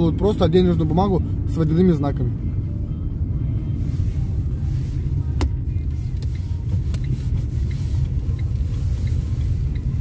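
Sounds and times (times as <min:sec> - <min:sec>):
car cabin engine and road rumble: 0:00.0 - 0:10.0.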